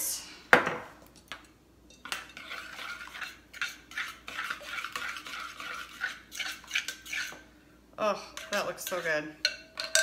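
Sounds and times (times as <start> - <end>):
spoon scraping and clinking glass: 1.9 - 7.4, 8.4 - 10.0.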